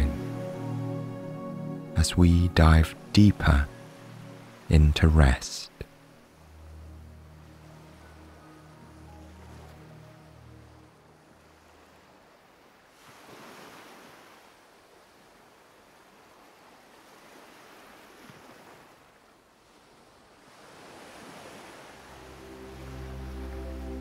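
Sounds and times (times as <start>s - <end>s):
soft music with held tones: 0.0s - 11.9s, 22.0s - 24.0s
ocean waves washing onto shore: 2.0s - 24.0s.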